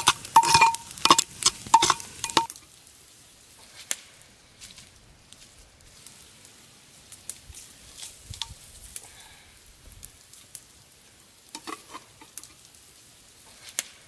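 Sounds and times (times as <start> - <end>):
knife scraping inside a pot: 0.0 - 2.5, 11.6 - 12.2
wood fire crackling: 0.0 - 14.0.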